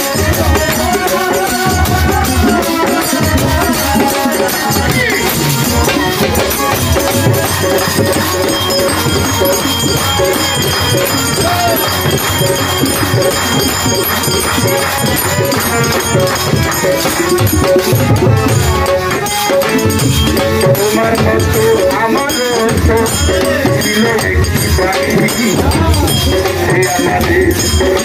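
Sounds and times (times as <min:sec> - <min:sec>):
hand drum beating: 0:00.0 - 0:28.0
harmonium chords: 0:00.0 - 0:28.0
rattling hand percussion: 0:00.0 - 0:28.0.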